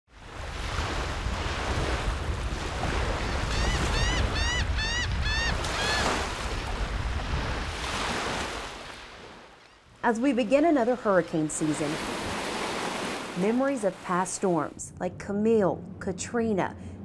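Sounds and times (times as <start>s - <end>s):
wind: 0.1s - 17.0s
gull calling: 3.1s - 6.8s
surf rushing: 11.5s - 14.6s.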